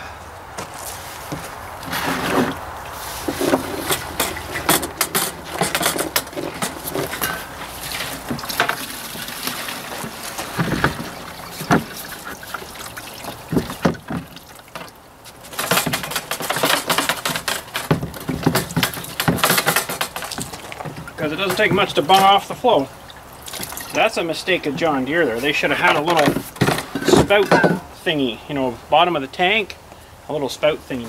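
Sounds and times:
liquid sloshing and pouring: 0:01.9 - 0:24.2
tank knocking and clattering: 0:03.2 - 0:22.6, 0:25.7 - 0:28.0.

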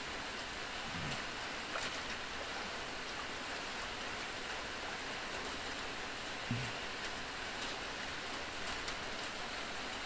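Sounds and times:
rain falling on water: 0:00.0 - 0:10.0.

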